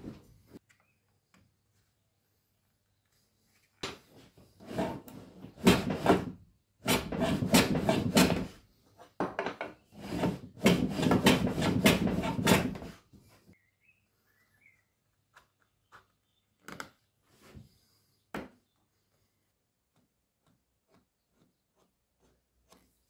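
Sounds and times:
wood scraped by hand: 4.4 - 8.6, 9.9 - 13.1.

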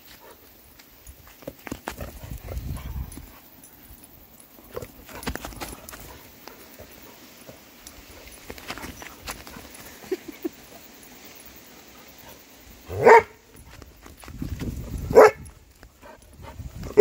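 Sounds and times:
dog running on dry grass: 4.7 - 7.0.

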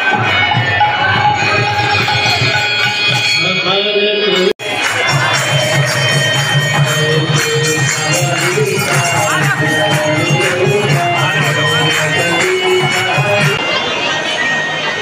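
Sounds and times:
crowd noise: 0.0 - 15.0
jingling percussion: 0.0 - 15.0
voices singing a chant: 4.6 - 13.6.

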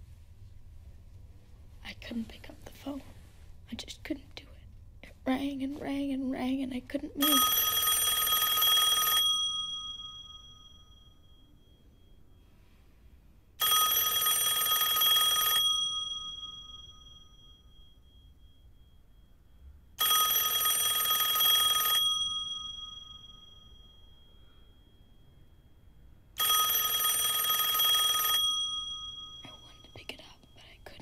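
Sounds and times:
telephone ringing: 7.2 - 12.6, 13.6 - 25.6, 26.2 - 29.9.

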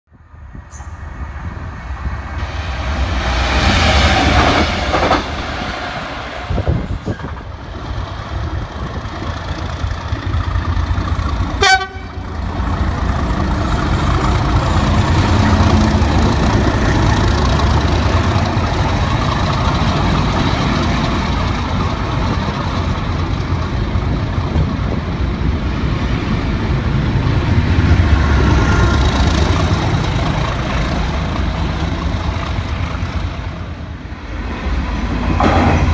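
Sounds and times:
diesel locomotive engine rumble: 0.1 - 35.9
train wheel noise: 0.4 - 35.9
train horn: 11.6 - 12.3.

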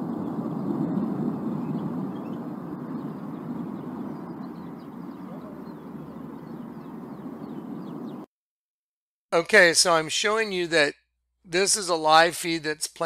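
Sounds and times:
low rumbling noise: 0.0 - 8.2.

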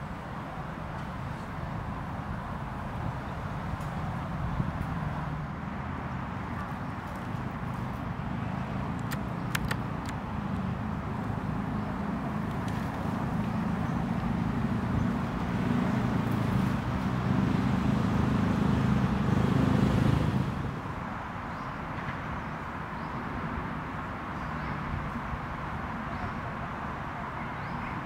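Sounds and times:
engine humming: 0.0 - 21.2
sharp clicks: 8.9 - 10.2.

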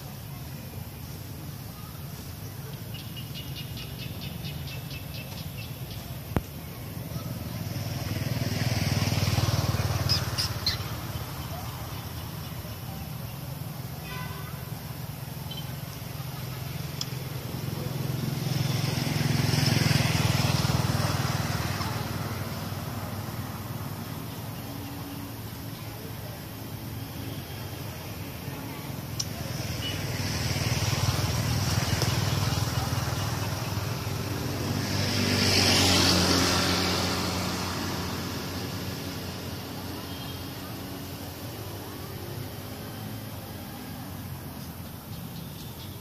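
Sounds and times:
vehicle engine humming: 0.0 - 46.0.

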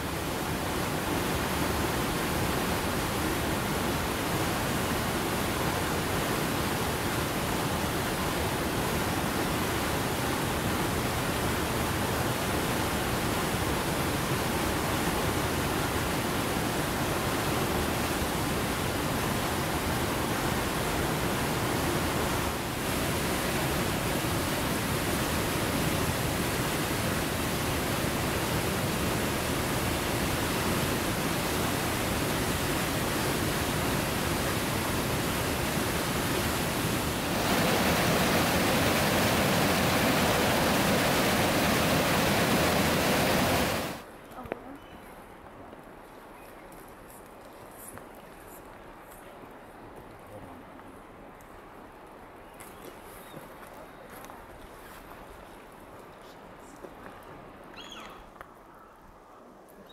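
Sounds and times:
creek water rushing over rocks: 0.0 - 44.1.

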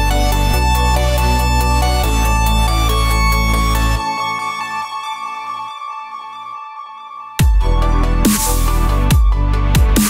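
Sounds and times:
heavy bass: 0.0 - 4.1, 7.4 - 10.0.

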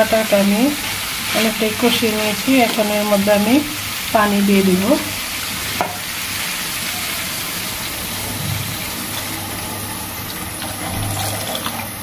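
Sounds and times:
water pouring into frying pan: 3.5 - 12.0.

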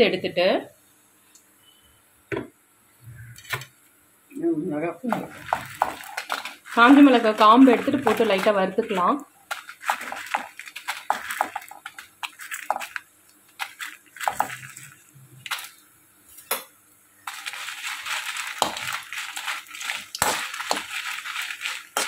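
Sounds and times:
oil frying hiss: 2.8 - 22.0
chillies clicking and crackling: 5.0 - 22.0.

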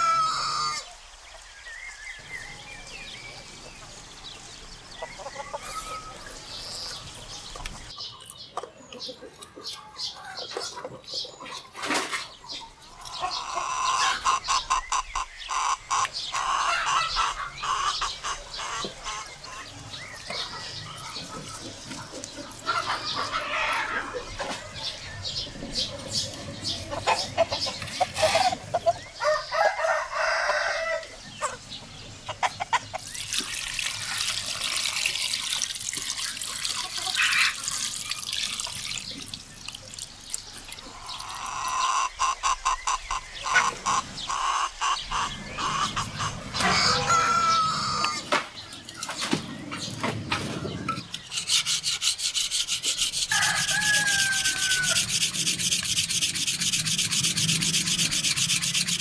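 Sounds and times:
chickens clucking: 3.1 - 33.7, 40.7 - 59.0
rooster crowing: 29.2 - 31.1, 53.3 - 55.4
knife scraping wood: 50.9 - 59.0.

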